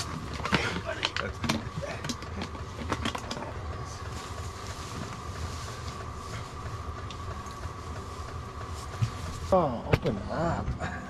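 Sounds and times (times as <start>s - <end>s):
heater low rumble: 0.0s - 11.0s
thin steady whine: 0.0s - 11.0s.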